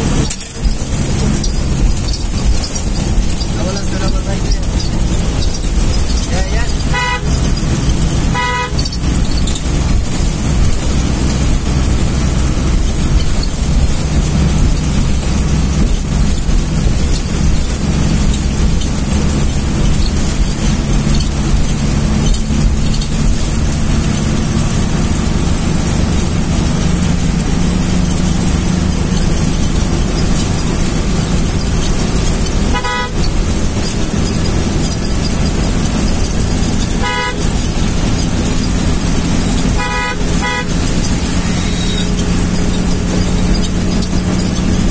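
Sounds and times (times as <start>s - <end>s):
bus engine running: 0.0s - 44.9s
road noise: 0.0s - 44.9s
horn toot: 6.6s - 9.1s, 32.7s - 33.4s, 36.8s - 37.8s, 39.6s - 42.2s.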